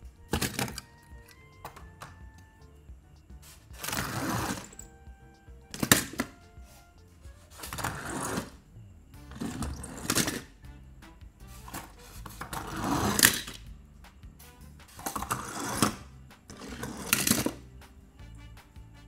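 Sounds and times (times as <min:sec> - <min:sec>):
soft background music: 0:00.0 - 0:19.0
toy cars rolling on plastic: 0:09.4 - 0:10.5, 0:15.0 - 0:17.6.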